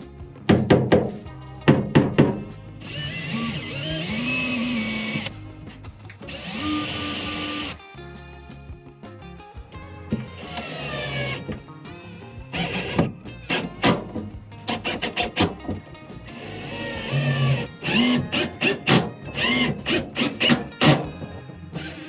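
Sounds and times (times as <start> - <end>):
drill-driver motor whine: 2.8 - 5.3, 6.3 - 7.8, 16.4 - 18.8, 19.4 - 20.6.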